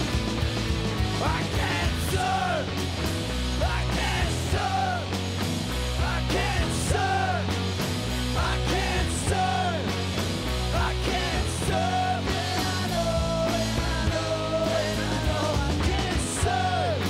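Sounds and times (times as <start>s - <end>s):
alternative rock band playing: 0.0s - 17.0s.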